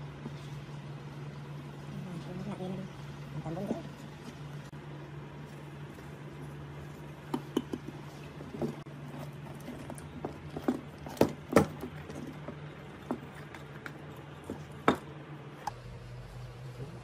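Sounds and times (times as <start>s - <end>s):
low hum: 15.2s - 17.0s.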